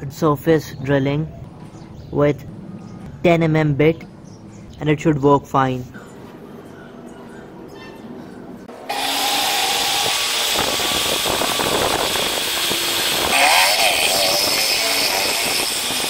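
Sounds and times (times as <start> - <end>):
drill press motor running: 8.8 - 16.0
drill bit boring into steel: 8.9 - 16.0.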